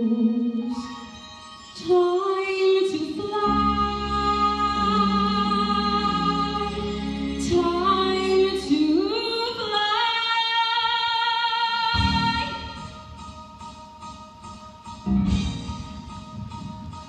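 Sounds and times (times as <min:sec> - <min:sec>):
woman singing: 0:00.0 - 0:01.1, 0:01.8 - 0:12.9
low chords: 0:12.0 - 0:17.0.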